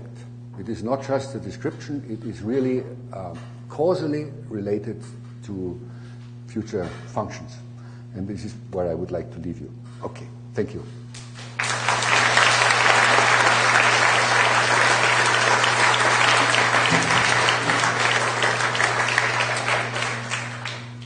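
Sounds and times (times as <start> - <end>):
audience applauding: 11.4 - 21.0.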